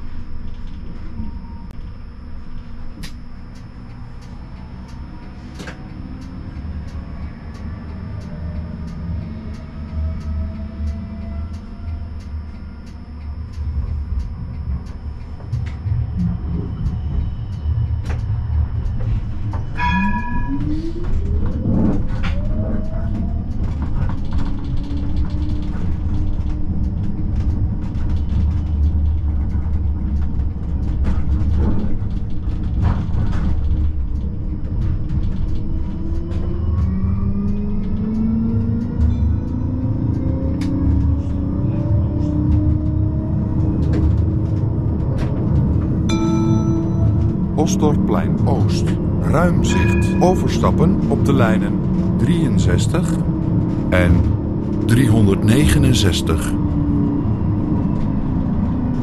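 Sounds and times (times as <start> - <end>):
traction motor whine: 0.0 - 59.0
tram rumbling on track: 0.0 - 59.0
high ringing tone: 0.1 - 22.4, 46.0 - 52.5.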